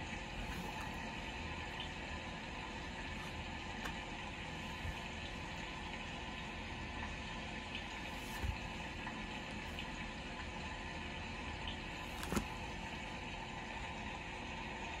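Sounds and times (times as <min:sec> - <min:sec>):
soft knocks of pages turned: 0:00.4 - 0:01.1, 0:08.0 - 0:08.8, 0:12.0 - 0:12.8.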